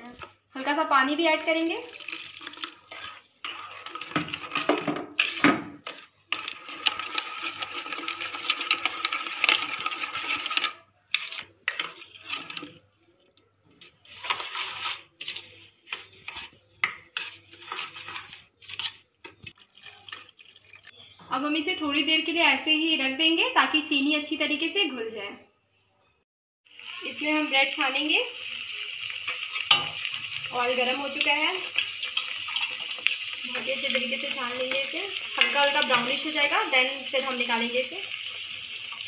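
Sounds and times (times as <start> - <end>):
spoon stirring in a bowl: 1.9 - 21.0, 29.1 - 36.7.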